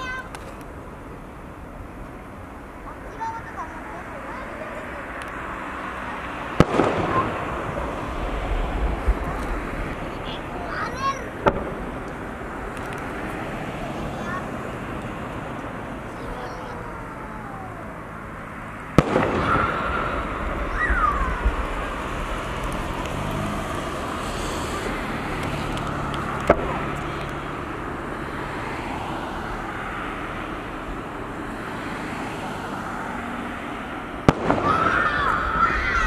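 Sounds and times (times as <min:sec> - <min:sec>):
outdoor background noise: 0:00.0 - 0:36.0
firework booms with echoing rumble: 0:06.6 - 0:10.6, 0:11.3 - 0:12.6, 0:19.0 - 0:22.8, 0:34.2 - 0:35.6.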